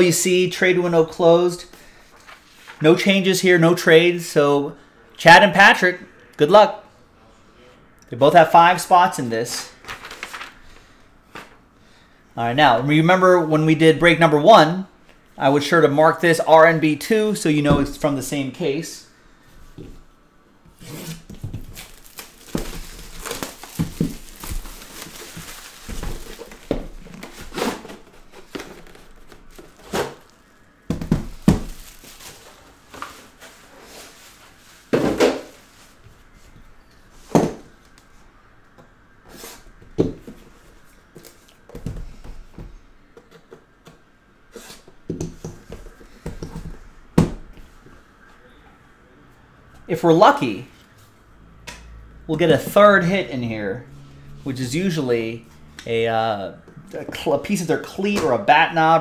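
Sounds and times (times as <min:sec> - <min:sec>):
plastic wrap crinkling: 0:21.0 - 0:36.0.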